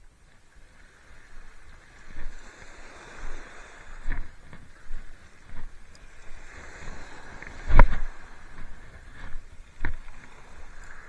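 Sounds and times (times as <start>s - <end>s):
small waves on shingle: 0.2s - 11.0s
footsteps crunching on pebbles: 6.6s - 10.4s.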